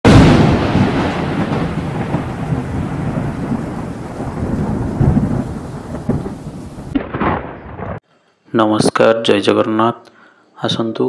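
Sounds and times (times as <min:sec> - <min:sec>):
deep thunder-like rumble: 0:00.1 - 0:08.0.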